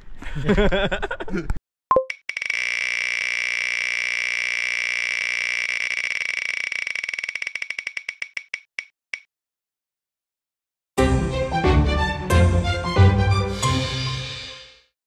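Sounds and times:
fast electronic ticks: 2.0 - 9.3.

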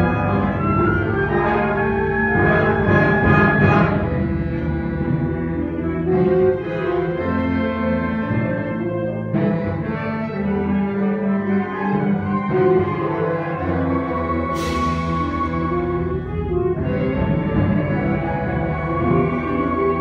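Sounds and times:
wind ensemble playing: 0.0 - 20.0
cymbal crash: 14.6 - 16.0.

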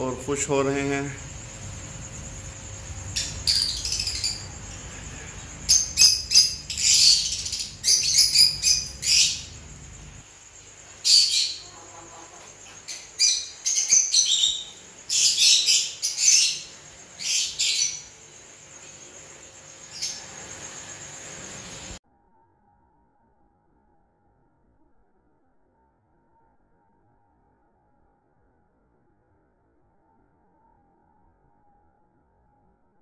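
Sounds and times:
birds chirping shrilly: 0.0 - 10.2, 12.8 - 18.2.

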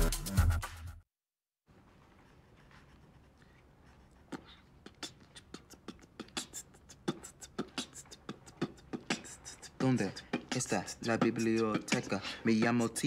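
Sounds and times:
beatboxing: 4.4 - 13.0.

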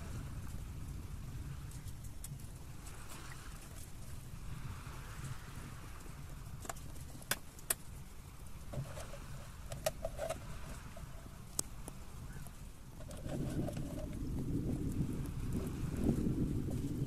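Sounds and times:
low steady rumble: 0.0 - 17.0
clicks and knocks of gear in boat: 6.4 - 7.9, 8.7 - 12.0, 12.9 - 14.4.

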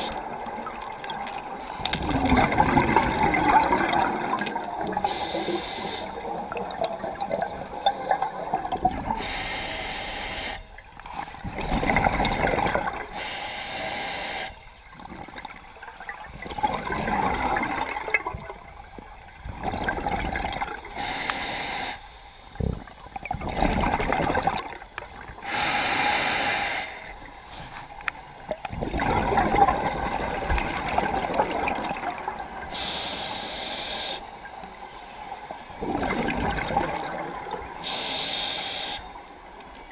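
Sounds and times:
exhaled bubbles rushing: 2.0 - 5.5, 6.1 - 9.2, 11.4 - 13.1, 16.2 - 18.6, 23.2 - 24.8, 28.6 - 32.6, 35.8 - 37.8
hissing regulator inhales: 4.9 - 6.2, 9.2 - 10.6, 21.0 - 22.0, 25.4 - 27.8, 32.7 - 34.3, 37.8 - 39.2.

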